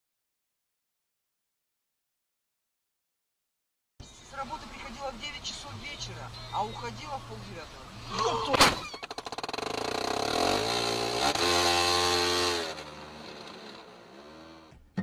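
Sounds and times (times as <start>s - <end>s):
car engine revving: 9.4s - 14.8s.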